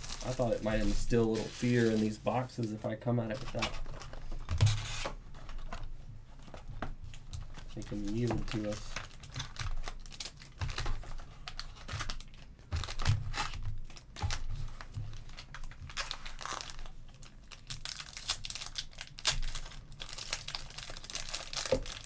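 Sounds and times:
foil wrapper tearing: 0:00.0 - 0:02.2, 0:07.8 - 0:14.5, 0:15.2 - 0:22.0
foil packs crinkling: 0:00.0 - 0:05.8, 0:07.3 - 0:22.0.

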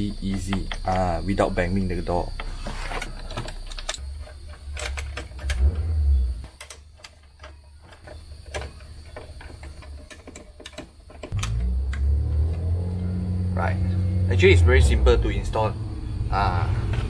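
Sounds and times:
low rumble: 0:11.4 - 0:17.0.

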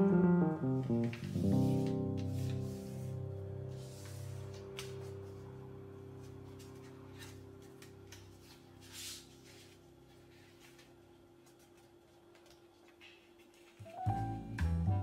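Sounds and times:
paper rustling and creasing: 0:03.8 - 0:05.4, 0:06.2 - 0:14.0
background music: 0:13.9 - 0:15.0.

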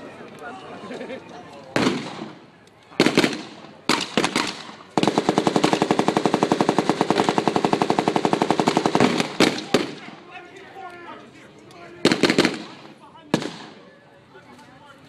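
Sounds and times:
blank gunshots: 0:01.8 - 0:10.2, 0:12.0 - 0:13.8
rapid machine-gun burst: 0:03.0 - 0:10.0, 0:12.0 - 0:13.6.

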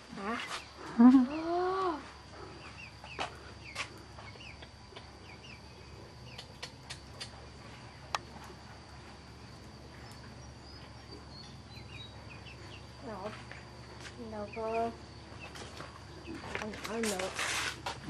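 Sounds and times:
small birds chirping: 0:00.2 - 0:08.3, 0:09.4 - 0:17.4.

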